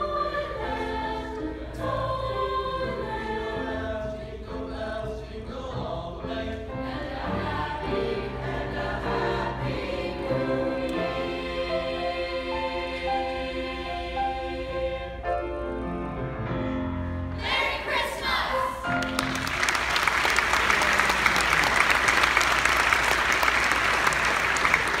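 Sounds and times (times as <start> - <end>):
choir singing: 0.0 - 15.8, 17.1 - 19.0
audience applause: 19.0 - 25.0.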